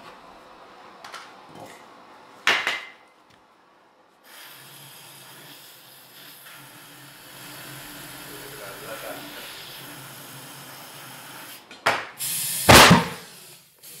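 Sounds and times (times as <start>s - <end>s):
compressed air hissing: 4.2s - 14.0s
loud snap: 11.8s - 13.2s.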